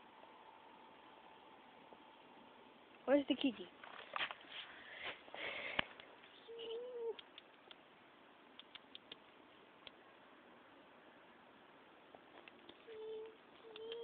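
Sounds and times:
steady hum-like tone: 0.0 - 14.0
faint ticks: 7.1 - 7.8, 8.6 - 10.0, 12.1 - 14.0
sharp click: 7.1 - 7.8, 8.6 - 10.0.

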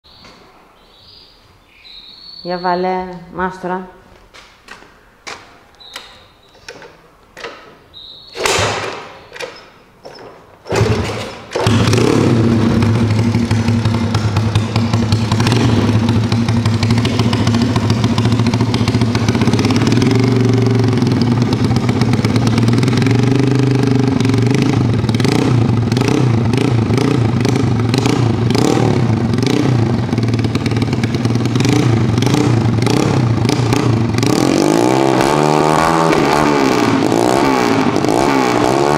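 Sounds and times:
engine turning over thumps: 10.3 - 38.8
motorcycle engine revving: 10.7 - 38.9.

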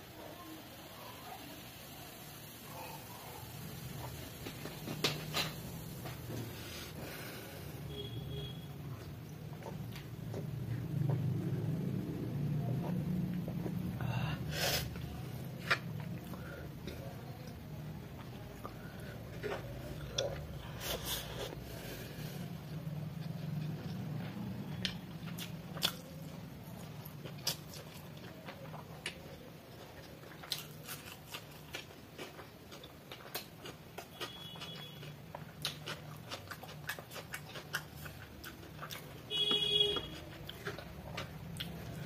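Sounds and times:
wet chewing: 7.9 - 14.0, 14.7 - 42.0.

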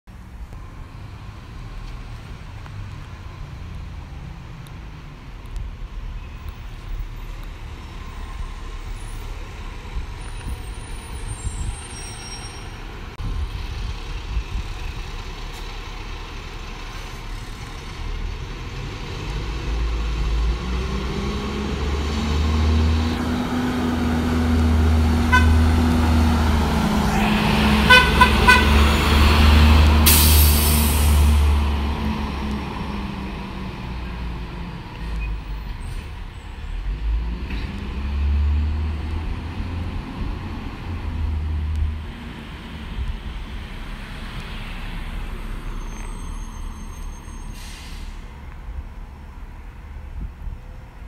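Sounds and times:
bus diesel engine passing: 0.6 - 50.0
bus horn toots: 25.2 - 25.7, 27.1 - 29.0.

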